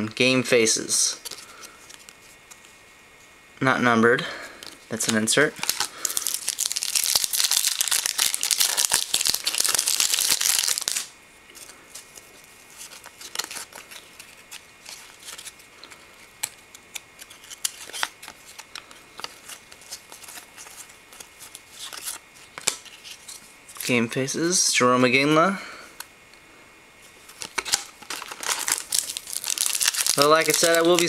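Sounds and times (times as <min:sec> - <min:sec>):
foil wrapper tearing and crinkling: 0:05.0 - 0:11.1, 0:12.8 - 0:15.6, 0:16.9 - 0:23.0, 0:27.2 - 0:31.0.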